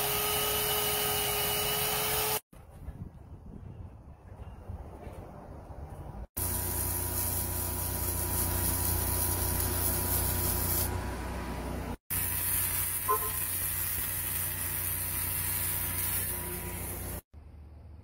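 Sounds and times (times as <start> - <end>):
arc welding hiss and sizzle: 6.4 - 10.9, 12.1 - 17.2.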